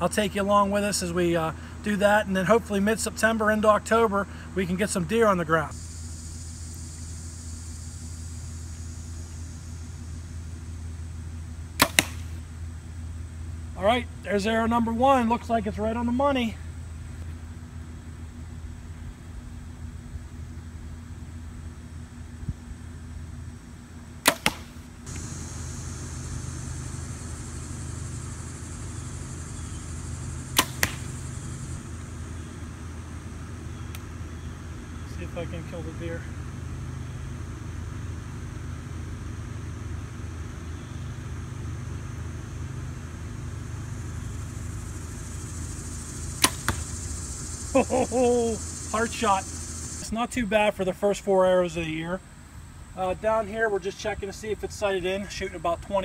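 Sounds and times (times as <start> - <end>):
low mechanical hum: 0.0 - 56.0
arrow hitting target: 11.8 - 12.4, 24.2 - 25.3, 30.5 - 31.2, 46.4 - 47.0
bow shot snap: 11.8 - 12.5, 24.2 - 25.9, 30.4 - 31.6, 46.3 - 47.0.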